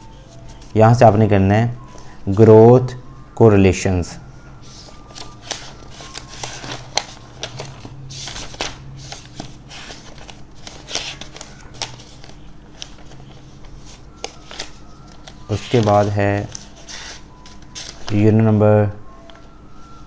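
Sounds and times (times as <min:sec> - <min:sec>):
book pages flipping: 0:00.1 - 0:00.8, 0:04.6 - 0:18.3.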